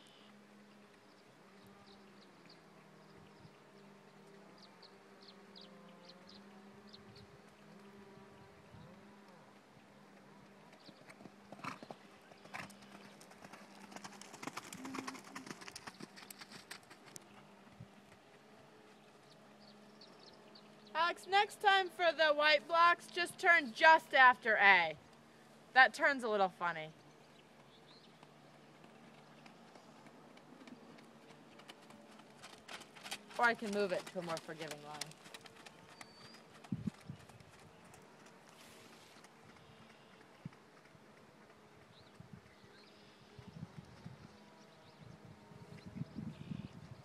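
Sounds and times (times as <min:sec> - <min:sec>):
horse hooves cantering on gravel: 0:10.7 - 0:19.4, 0:27.6 - 0:43.2.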